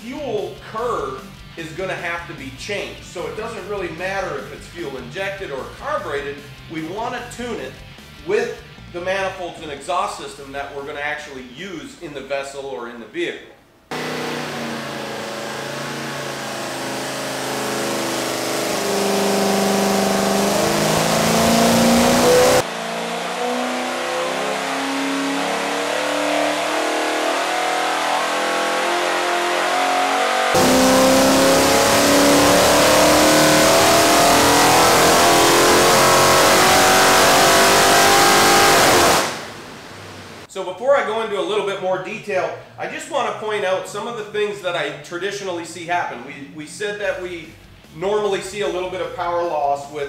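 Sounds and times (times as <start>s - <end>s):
engine revving under load: 13.9s - 40.5s.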